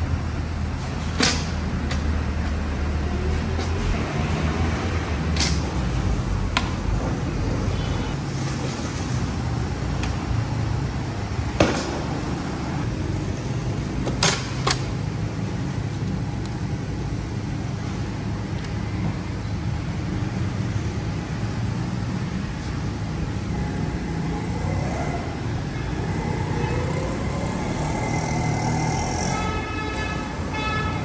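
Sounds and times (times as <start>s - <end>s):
road traffic rumble: 0.0s - 31.0s.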